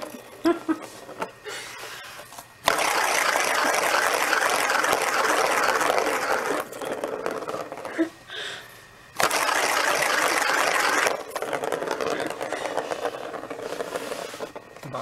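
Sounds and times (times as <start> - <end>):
plastic ball rolling on plastic track: 2.6 - 8.2, 9.2 - 15.0.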